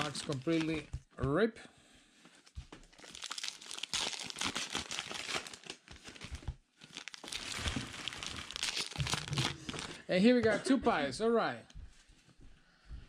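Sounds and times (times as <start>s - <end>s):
foil wrappers crinkling and ripping: 0.0s - 1.0s, 2.9s - 10.0s.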